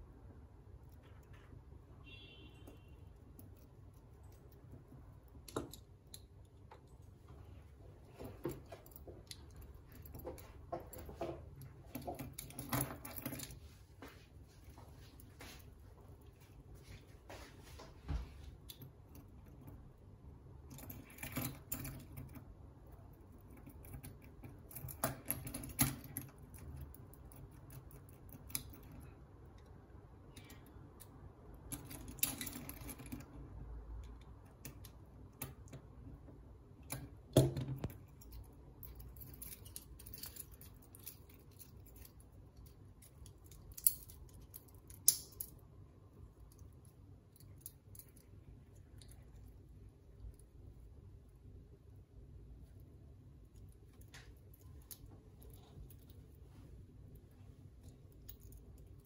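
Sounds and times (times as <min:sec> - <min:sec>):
metal bracelet links clinking: 0:37.8 - 0:45.7, 0:46.4 - 0:50.4, 0:57.8 - 0:59.0.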